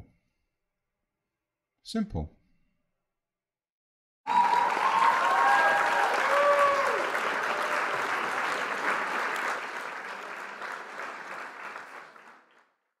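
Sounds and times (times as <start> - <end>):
crowd applauding: 4.3 - 12.7.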